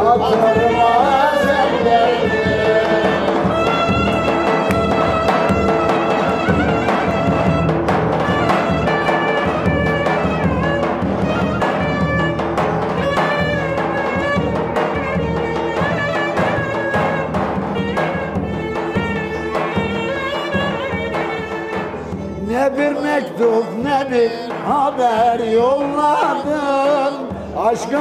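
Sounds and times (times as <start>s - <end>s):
violin melody: 1.7s - 12.4s, 13.0s - 22.4s
clarinet melody: 3.2s - 12.4s, 13.0s - 22.4s.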